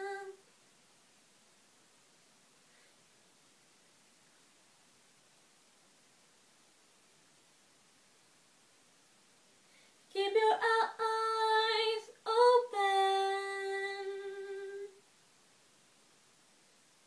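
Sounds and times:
woman singing unaccompanied: 0.0s - 0.4s, 10.1s - 15.0s.

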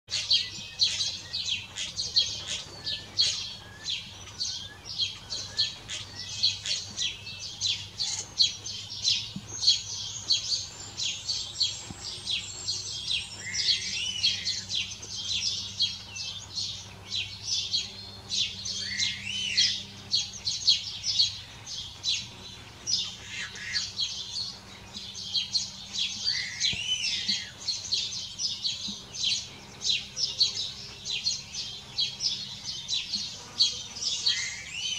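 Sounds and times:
starlings singing: 0.1s - 34.9s.

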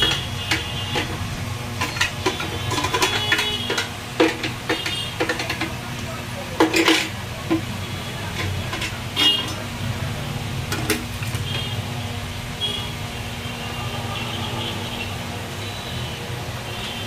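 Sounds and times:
blender jar knocking on plastic: 1.8s - 5.8s.

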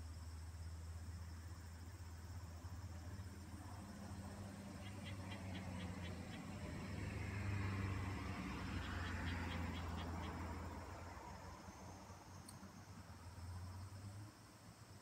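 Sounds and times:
distant vehicle passing: 3.0s - 14.4s.

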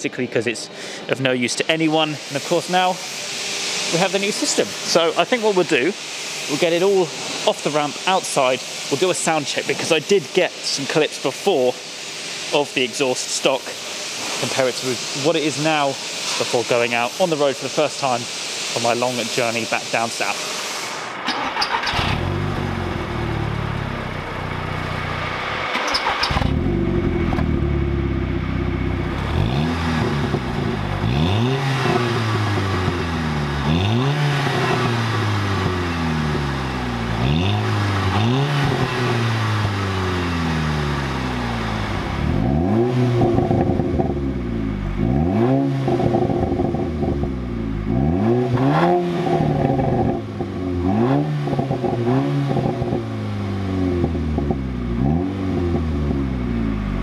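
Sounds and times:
car engine revving: 21.4s - 57.0s.

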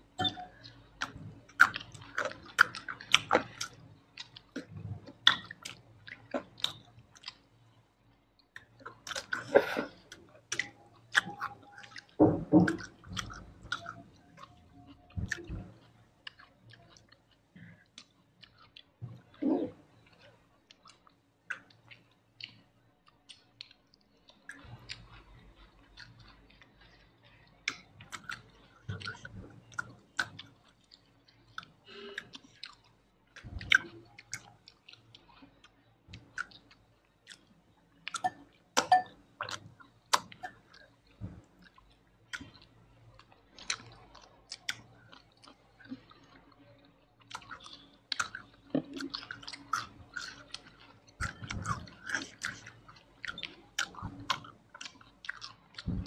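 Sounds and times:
chewing and biting food: 0.2s - 56.0s
wet mouth sounds: 8.6s - 20.0s, 47.2s - 56.0s.

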